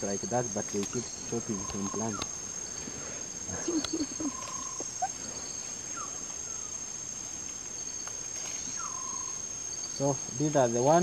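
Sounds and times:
insects droning: 0:00.0 - 0:11.0
low calls: 0:00.0 - 0:11.0
bird calls: 0:00.7 - 0:06.8, 0:08.0 - 0:10.1.

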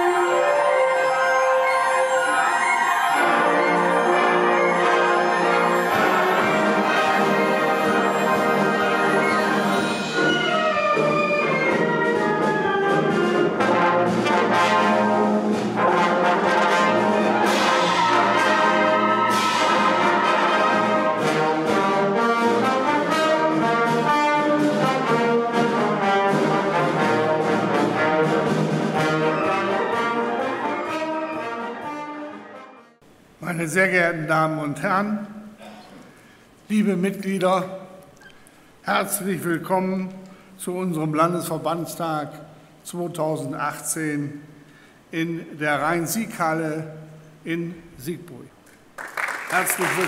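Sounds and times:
wind band playing: 0:00.0 - 0:33.4.

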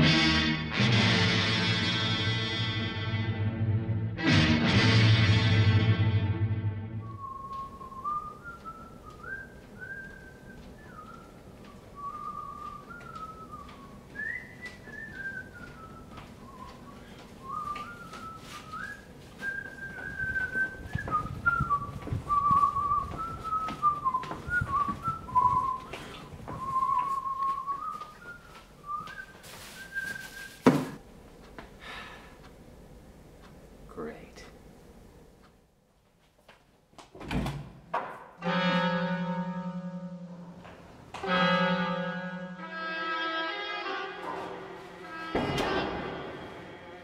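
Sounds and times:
man whistling a tune: 0:07.0 - 0:30.6
sharp knock: 0:45.3 - 0:46.4.

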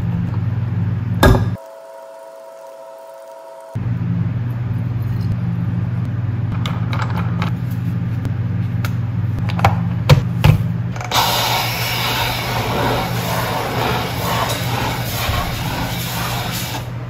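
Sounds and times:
steady low hum: 0:00.0 - 0:17.0
steam hissing from nozzle: 0:11.1 - 0:17.0.

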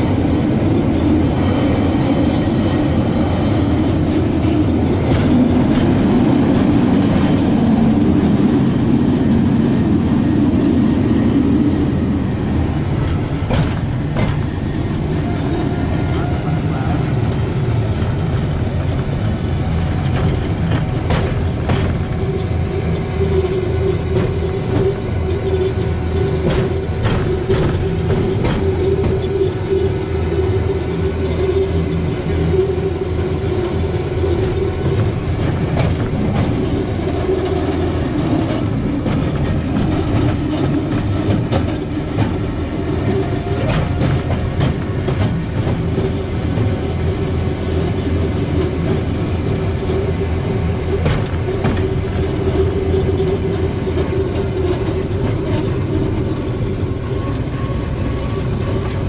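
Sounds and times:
rail bike rolling on track: 0:00.0 - 0:59.0
wheel clacks: 0:12.9 - 0:59.0.

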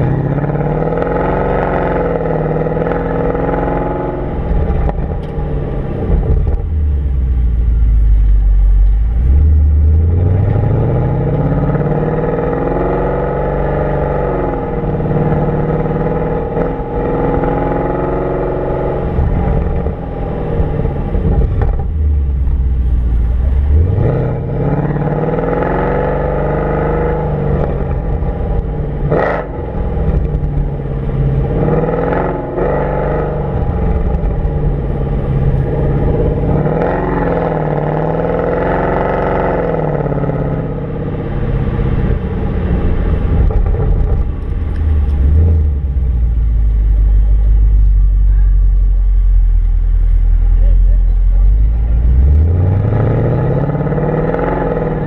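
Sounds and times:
car engine accelerating and shifting: 0:00.0 - 0:55.0
road noise: 0:00.0 - 0:55.0.

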